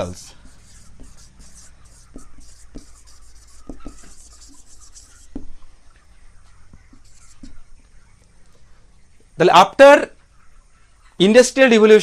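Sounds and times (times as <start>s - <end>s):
marker scratching on whiteboard: 0.0s - 5.6s, 6.6s - 7.7s.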